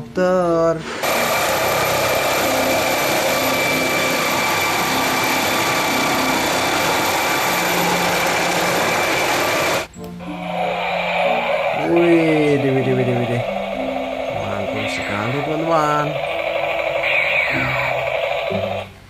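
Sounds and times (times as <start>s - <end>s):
helicopter rotor and engine noise: 1.0s - 9.9s, 11.5s - 18.9s
helicopter turbine whine: 1.0s - 19.0s.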